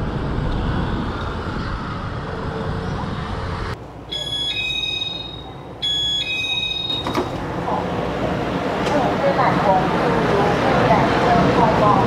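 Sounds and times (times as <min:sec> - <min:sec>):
street traffic noise: 0:00.0 - 0:12.0
train door chime: 0:04.1 - 0:07.4.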